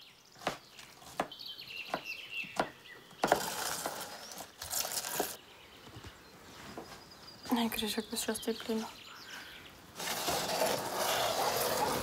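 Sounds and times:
birds chirping: 0.0 - 10.2.

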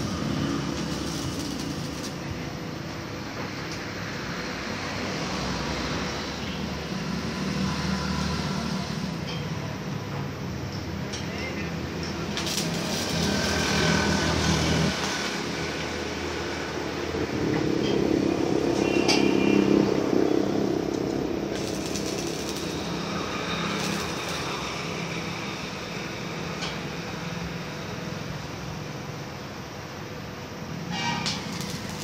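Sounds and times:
welding arc crackling: 0.0 - 2.5, 11.8 - 17.1, 20.7 - 26.7, 30.8 - 32.0.

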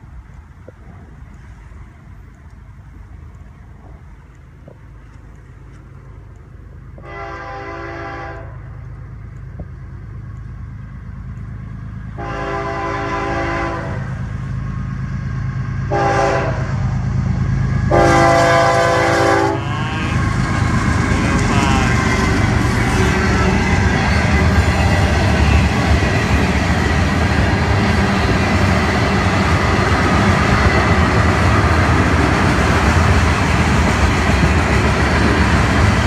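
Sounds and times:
locomotive engine and wheel rumble: 0.0 - 36.0
locomotive horn blasts: 7.0 - 8.6, 12.2 - 14.1, 15.9 - 16.7, 17.9 - 26.1.

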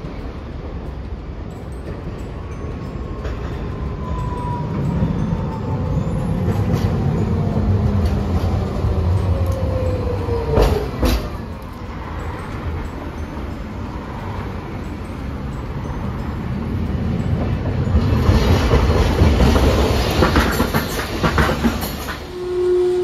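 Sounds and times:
street hum: 0.0 - 23.0
tram motor whine: 0.0 - 23.0
sharp clacks: 17.4 - 22.3.

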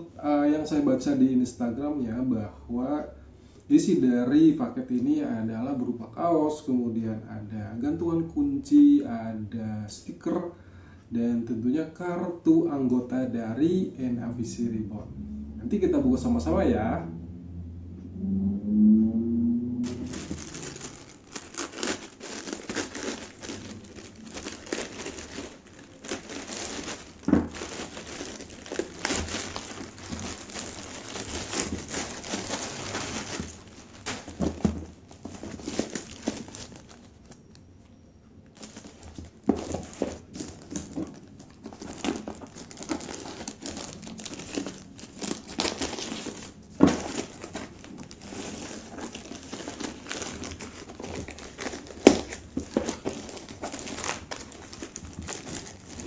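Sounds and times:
plastic packaging crinkling: 19.8 - 37.6, 38.5 - 56.0.

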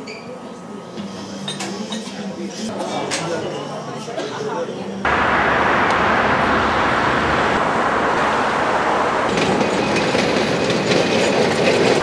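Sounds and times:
street traffic road noise: 5.1 - 12.0.

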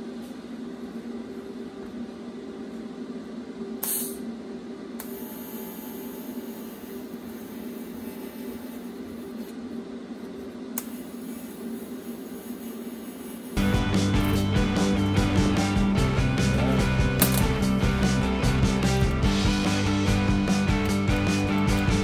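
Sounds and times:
low hum: 13.6 - 22.0.

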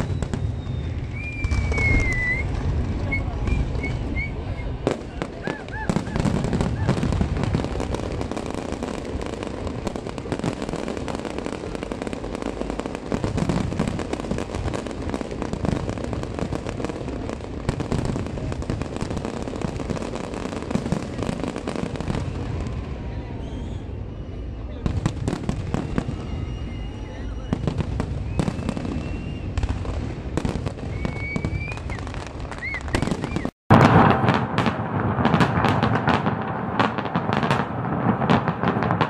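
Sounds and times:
firework whistles: 0.0 - 39.0
fireworks booming and crackling: 0.0 - 39.0.

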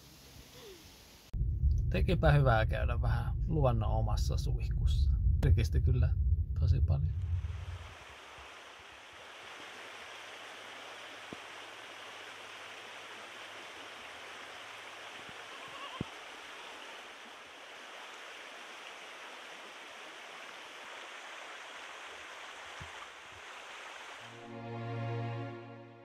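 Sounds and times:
steady rushing outdoor noise: 7.1 - 24.3.

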